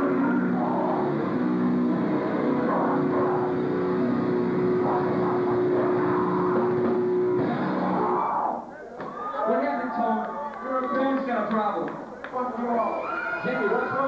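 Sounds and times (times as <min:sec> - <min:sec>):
distorted live rock music: 0:00.0 - 0:08.7.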